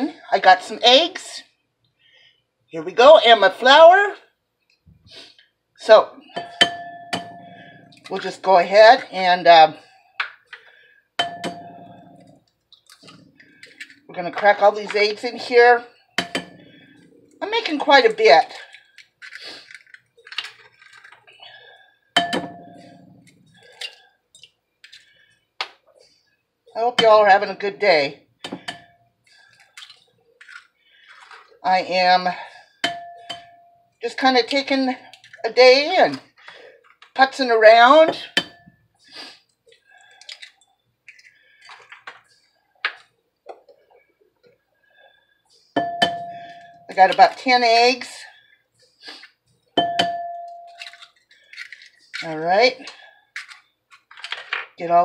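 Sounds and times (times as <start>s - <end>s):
bowl ringing: 6.3s - 8.1s, 11.2s - 12.4s, 22.2s - 23.6s, 32.8s - 34.0s, 38.3s - 38.8s, 45.8s - 47.0s, 49.8s - 51.0s
eggs cracking on a bowl: 10.2s - 15.1s, 16.0s - 25.9s, 28.4s - 31.7s, 39.6s - 43.7s, 49.2s - 54.8s
eggshell crackles: 16.0s - 21.5s, 29.3s - 31.6s, 39.1s - 43.2s, 50.8s - 52.4s.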